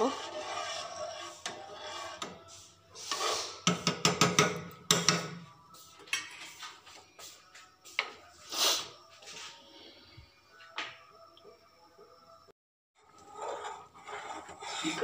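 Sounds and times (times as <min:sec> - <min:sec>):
spoon clinking and scraping pot: 0:00.0 - 0:05.5, 0:13.0 - 0:15.0.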